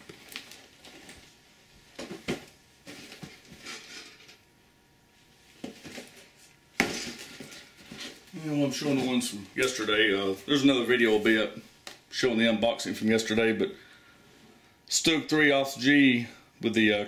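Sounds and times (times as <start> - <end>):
cardboard boxes knocking and rustling: 5.6 - 8.2.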